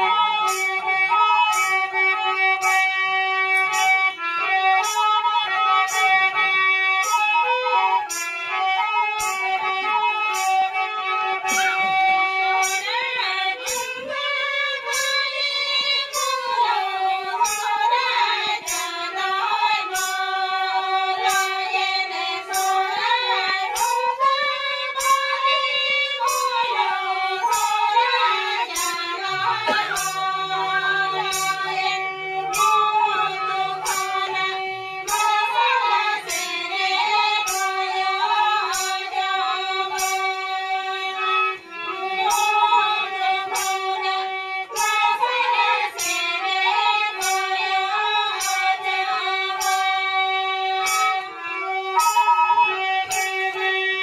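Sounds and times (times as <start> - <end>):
bamboo flute: 0.0 - 54.0
harmonium chords: 0.0 - 54.0
tapping beat: 0.4 - 5.2, 9.2 - 10.6, 11.4 - 44.0, 44.7 - 50.0
woman singing: 12.6 - 51.4.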